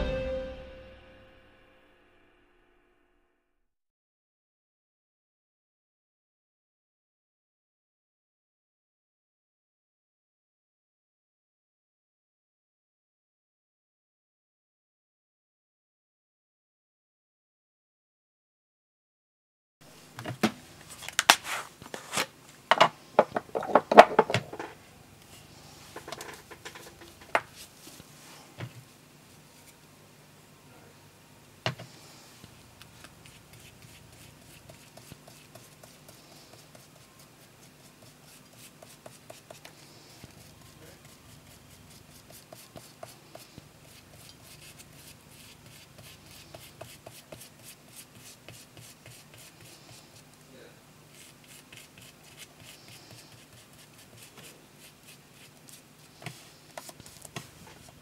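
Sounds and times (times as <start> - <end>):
paper rustling: 20.8 - 22.4
tool rubbing on paper: 32.9 - 50.3, 51.1 - 58.0.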